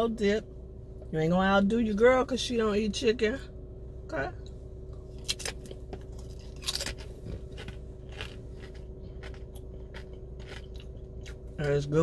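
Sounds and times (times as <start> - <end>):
low hum: 0.0 - 12.0
chewing crunchy chip: 5.2 - 11.5.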